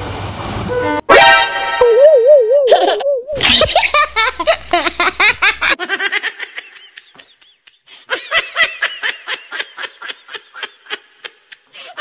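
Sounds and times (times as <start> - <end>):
high-pitched rapid laughter: 1.8 - 7.0.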